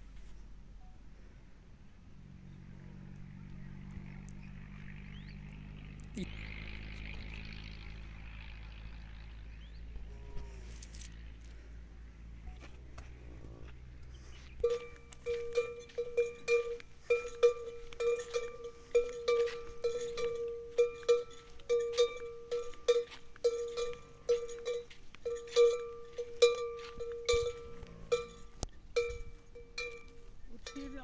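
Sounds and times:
metal bell clanking: 14.6s - 31.0s.

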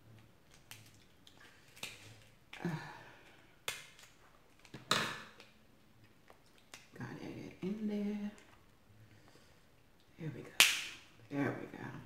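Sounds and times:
crab shell cracking: 0.5s - 2.3s, 3.6s - 5.5s.

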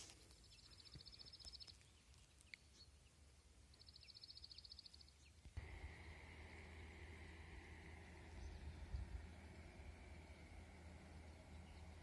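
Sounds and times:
faint bird chirps: 0.3s - 5.6s
low steady rumble: 5.6s - 12.0s.

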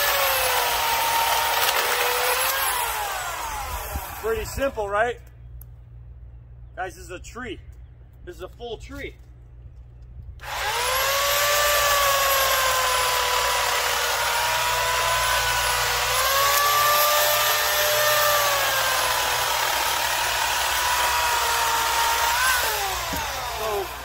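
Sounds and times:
electric chainsaw cutting wood: 0.0s - 4.5s, 10.4s - 24.0s.

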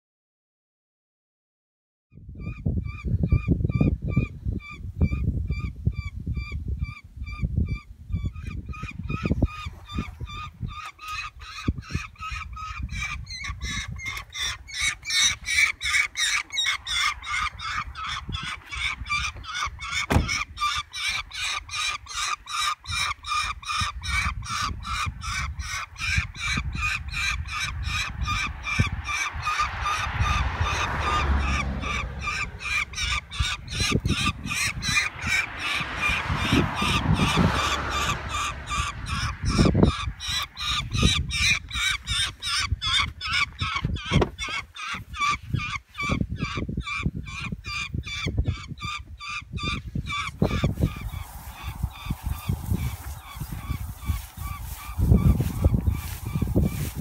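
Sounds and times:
bird of prey honking cries: 8.4s - 57.0s.

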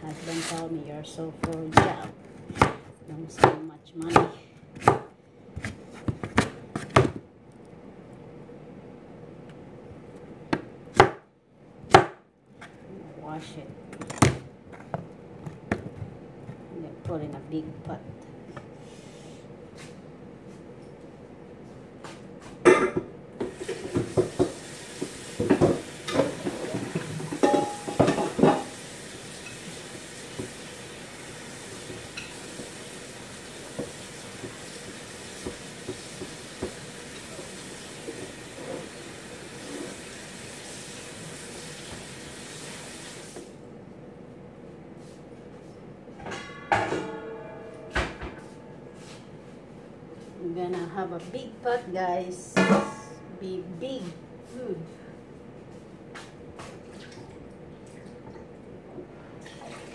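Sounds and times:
water running from a tap: 23.6s - 43.4s
metal pot clanking: 25.5s - 28.7s, 46.2s - 48.1s.

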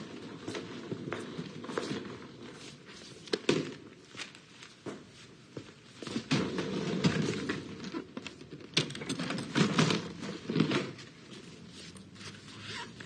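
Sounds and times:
suitcase knocking and clattering: 6.1s - 11.0s.

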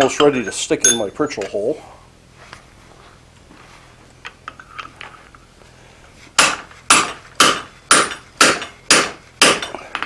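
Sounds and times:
hammer striking punch on anvil: 6.4s - 10.0s.

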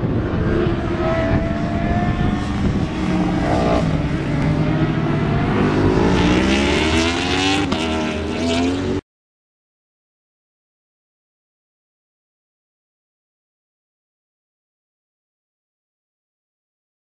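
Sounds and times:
motorcycle engine accelerating: 0.0s - 9.0s.

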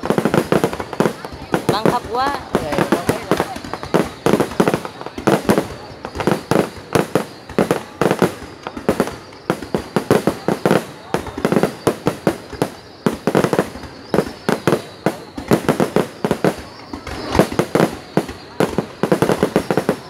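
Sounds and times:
fireworks bangs: 0.0s - 20.0s.

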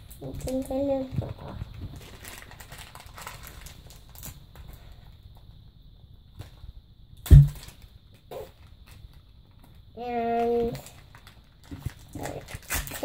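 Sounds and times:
plastic packet crinkling: 0.3s - 4.5s, 7.4s - 7.9s, 10.4s - 13.0s
loud thump: 7.3s - 7.6s.

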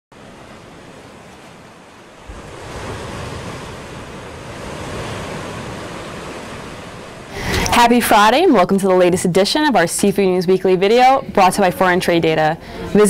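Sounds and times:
rushing surf-like whoosh: 0.2s - 7.8s.

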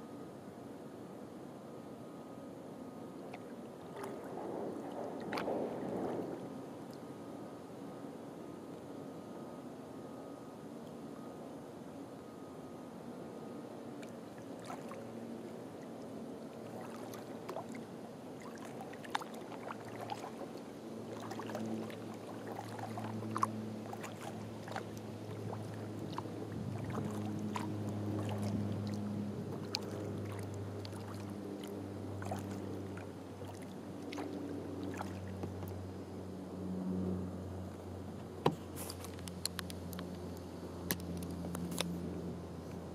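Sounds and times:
low wavering hum: 0.0s - 42.9s
paddle splashes and drips: 3.1s - 7.0s, 14.0s - 35.9s.

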